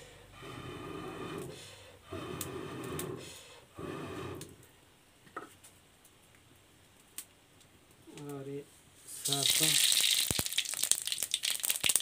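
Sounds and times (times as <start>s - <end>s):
breath blown through a pipe: 0.0s - 4.6s.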